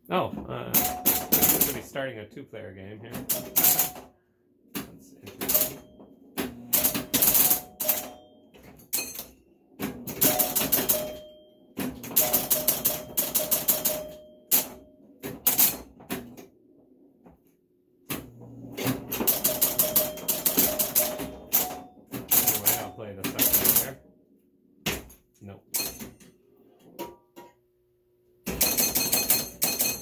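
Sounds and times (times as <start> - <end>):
pinball reels clicking and clacking: 0.1 - 2.0, 2.9 - 24.1, 24.8 - 27.7, 28.4 - 30.0.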